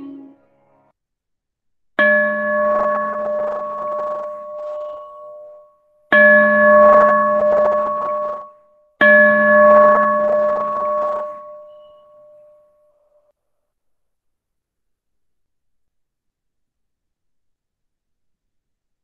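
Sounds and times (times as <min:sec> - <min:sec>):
metal bell ringing: 0:02.0 - 0:12.6.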